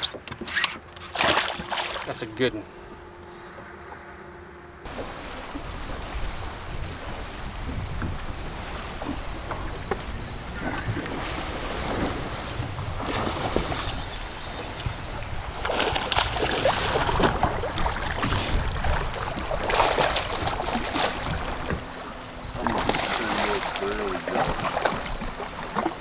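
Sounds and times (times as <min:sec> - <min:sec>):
water slapping boat: 0:00.0 - 0:26.0
fish splashing at surface: 0:01.0 - 0:02.1, 0:22.6 - 0:26.0
wind buffeting microphone: 0:04.8 - 0:26.0.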